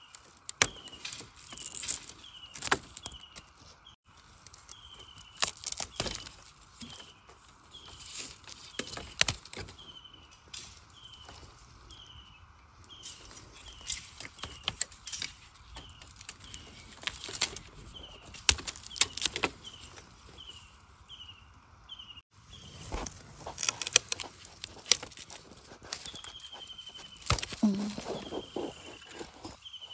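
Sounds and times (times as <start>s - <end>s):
dry leaves crackling underfoot: 0.0s - 12.1s, 12.9s - 21.2s, 22.4s - 29.9s
bird chirping: 9.7s - 29.9s.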